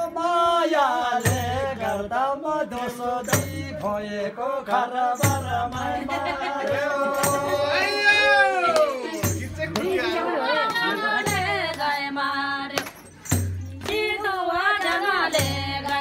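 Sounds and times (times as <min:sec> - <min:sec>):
man singing: 0:00.0 - 0:11.3.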